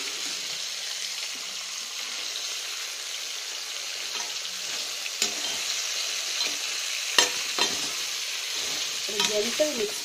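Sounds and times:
crab sizzling in hot oil: 0:00.0 - 0:10.0
spatula mixing in pan: 0:03.9 - 0:10.0
spatula clacking against pan: 0:07.2 - 0:08.0.

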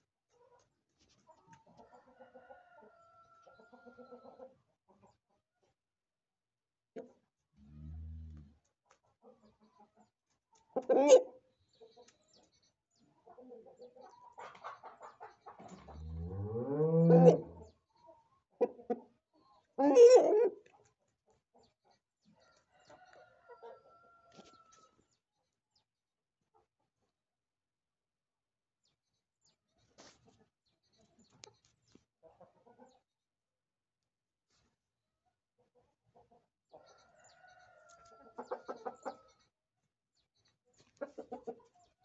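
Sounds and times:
chicken clucks: 0:00.2 - 0:05.8, 0:06.9 - 0:07.4, 0:08.4 - 0:25.5, 0:26.4 - 0:27.1, 0:29.4 - 0:33.2, 0:34.6 - 0:39.6, 0:40.4 - 0:42.0
faint rooster crow: 0:01.7 - 0:04.5, 0:22.4 - 0:25.0, 0:36.8 - 0:39.4
rooster crowing: 0:16.2 - 0:17.7.

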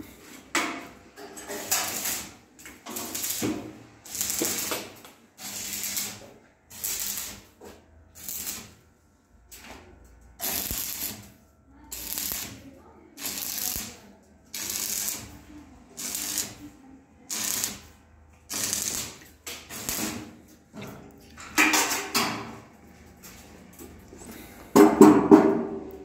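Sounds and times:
electric arc welding bursts: 0:01.6 - 0:07.6, 0:08.2 - 0:08.8, 0:10.4 - 0:12.6, 0:13.2 - 0:15.4, 0:16.0 - 0:16.6, 0:17.3 - 0:17.9, 0:18.5 - 0:20.3.

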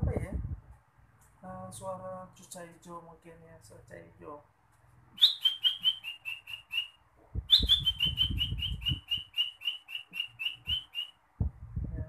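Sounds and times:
man whistling bird song: 0:05.2 - 0:11.2
low muffled noise: 0:10.6 - 0:12.0.

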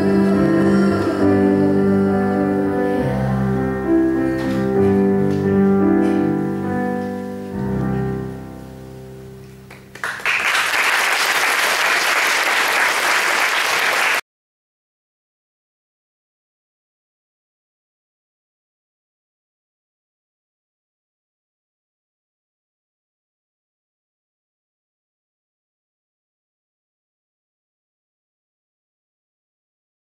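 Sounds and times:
slow instrumental music: 0:00.0 - 0:10.2
audience applause: 0:09.7 - 0:14.2.

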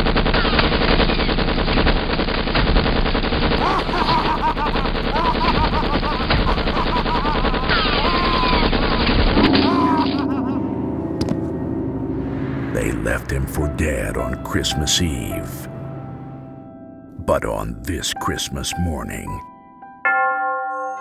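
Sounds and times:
submachine gun burst: 0:00.0 - 0:10.0
man laughing loudly: 0:03.6 - 0:08.6, 0:09.5 - 0:10.8.

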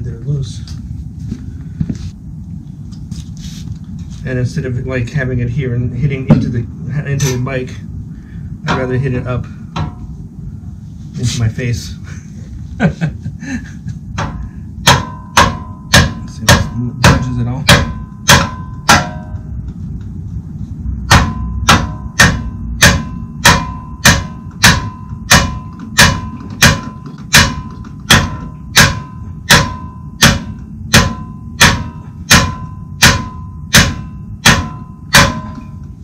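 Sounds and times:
low steady hum: 0:00.0 - 0:36.0
mallet striking metal wrench: 0:14.2 - 0:19.6, 0:21.0 - 0:36.0.

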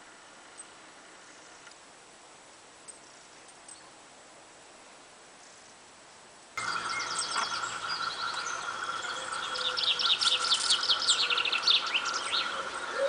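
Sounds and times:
faint hiss: 0:00.0 - 0:13.0
songbirds singing: 0:06.6 - 0:13.0
steady faint tone: 0:06.6 - 0:13.0.

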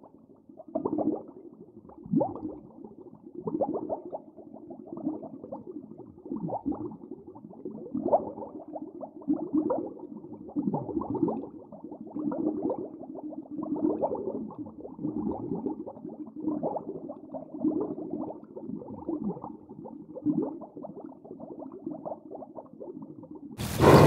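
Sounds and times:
underwater bubbling crackle: 0:00.0 - 0:24.0
low underwater swooshing: 0:23.6 - 0:24.0.

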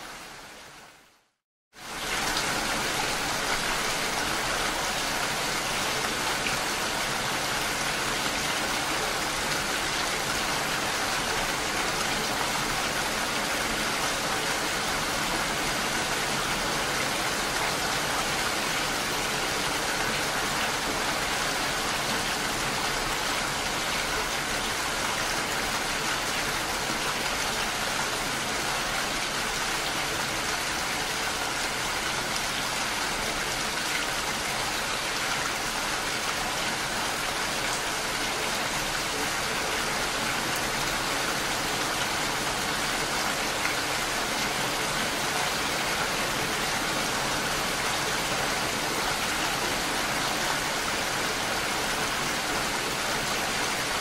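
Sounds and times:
steady rain hiss: 0:00.0 - 0:54.0.

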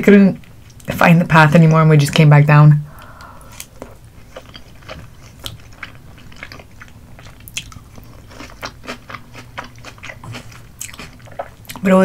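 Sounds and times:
close chewing with mouth clicks: 0:03.0 - 0:11.9.

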